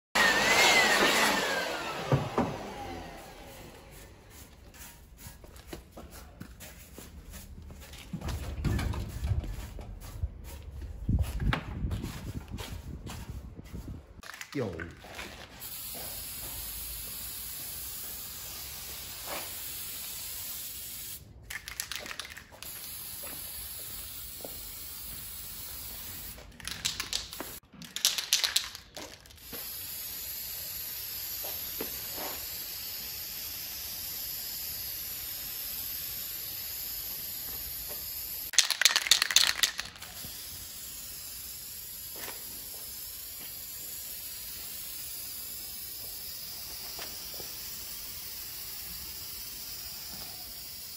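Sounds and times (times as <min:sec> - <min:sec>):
spray paint can hissing: 0:03.6 - 0:13.4, 0:15.5 - 0:50.9.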